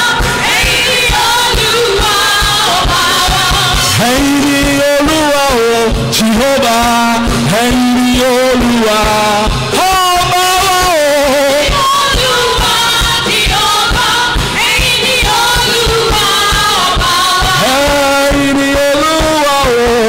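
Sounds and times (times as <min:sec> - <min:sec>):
women's choir singing: 0:00.0 - 0:04.0, 0:11.6 - 0:17.7
drum kit beat: 0:00.0 - 0:20.0
man singing into a microphone: 0:00.7 - 0:12.9, 0:15.0 - 0:20.0.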